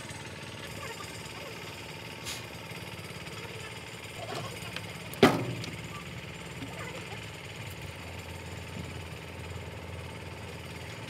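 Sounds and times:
excavator diesel engine idling: 0:00.0 - 0:11.0
loud sharp knock: 0:05.2 - 0:05.7.

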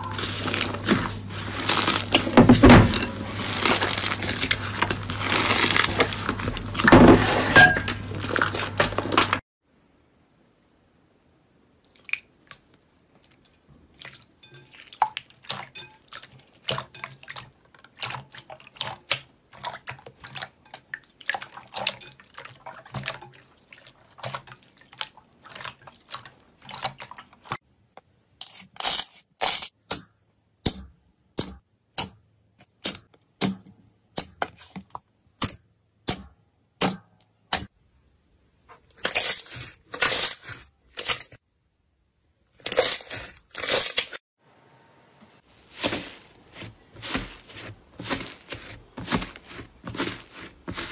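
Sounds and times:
slime squelching: 0:00.0 - 0:07.0, 0:11.9 - 0:27.6, 0:45.4 - 0:50.9.

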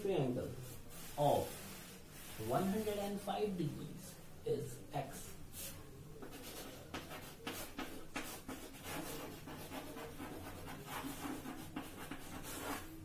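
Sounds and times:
chalk writing on a blackboard: 0:00.6 - 0:03.2, 0:05.5 - 0:13.0.

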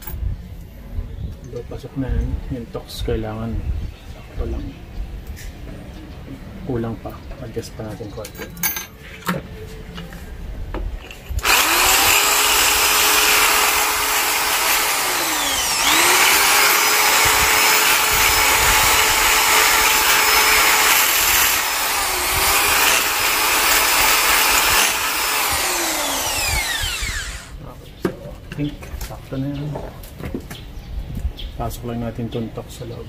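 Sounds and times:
hammer drill boring into masonry: 0:11.1 - 0:27.6.

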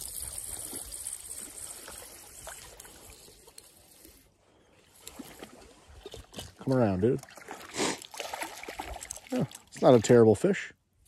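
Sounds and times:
lake water trickling and lapping: 0:00.0 - 0:11.0.

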